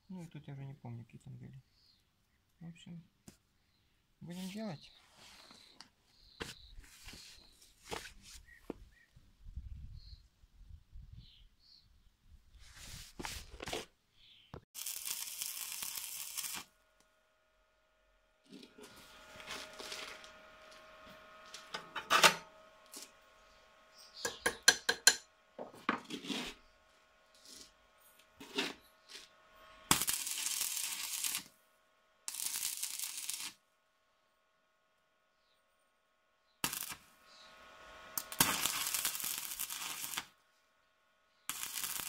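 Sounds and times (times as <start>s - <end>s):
arc welding crackle: 14.7s - 17.2s, 18.4s - 25.3s, 26.0s - 31.6s, 32.2s - 33.6s, 36.6s - 40.4s, 41.5s - 42.0s.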